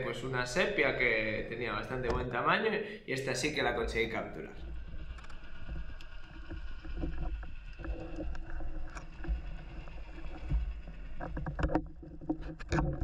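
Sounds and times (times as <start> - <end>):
underwater rumble of moving water: 0.0 - 2.6, 3.2 - 13.0
faint underwater hum: 0.0 - 12.6
small underwater clicks: 4.6 - 13.0.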